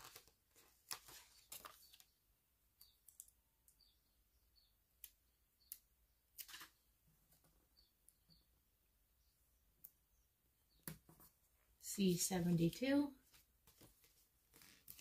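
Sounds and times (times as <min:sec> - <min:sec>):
paper sticker sheet rustling: 0:00.0 - 0:02.1.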